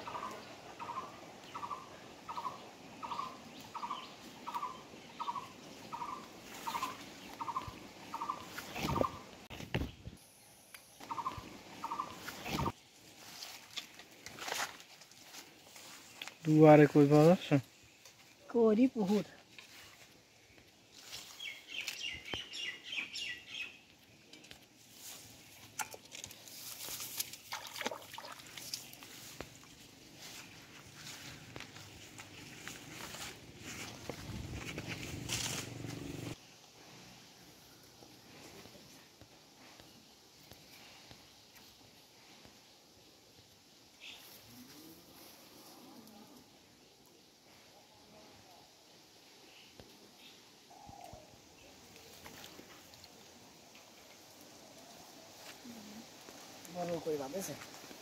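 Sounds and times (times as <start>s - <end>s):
bird chirping: 0.0s - 12.8s, 20.9s - 24.5s
outdoor background noise: 0.0s - 58.0s.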